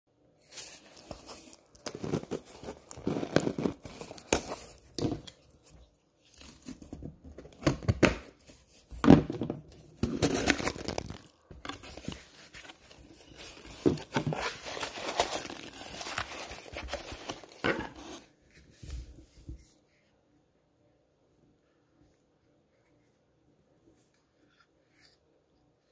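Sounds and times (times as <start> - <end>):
cardboard box tearing: 0.7 - 4.8, 10.0 - 12.2, 12.8 - 18.3.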